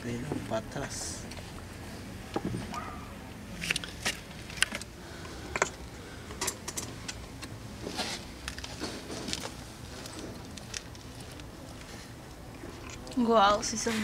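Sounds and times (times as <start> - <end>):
low steady background noise: 0.0 - 14.0
kindling crackling: 7.0 - 14.0.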